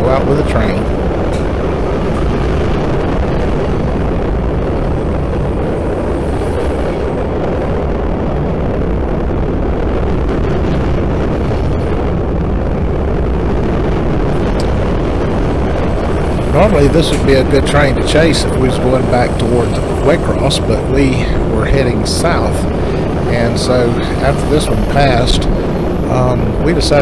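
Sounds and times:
freight train wheels rumbling on rail: 0.0 - 2.7, 14.6 - 27.0.

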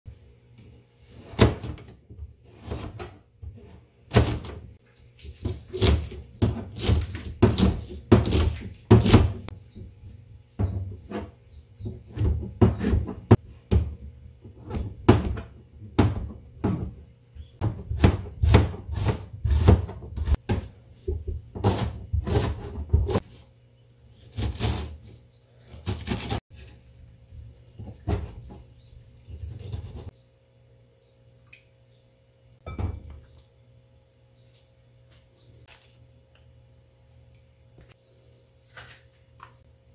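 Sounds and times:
knife chopping on cutting board: 5.4 - 9.5.

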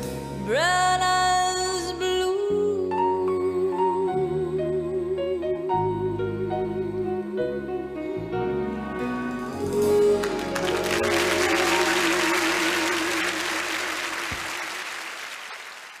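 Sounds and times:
audience applauding: 10.1 - 16.0.

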